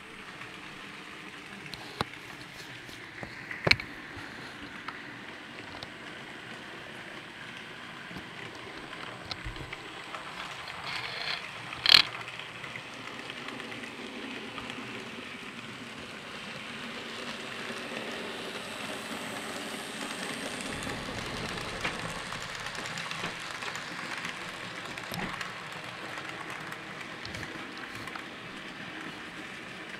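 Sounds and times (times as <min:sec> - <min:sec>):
model train whirring and rattling: 0:00.0 - 0:29.9.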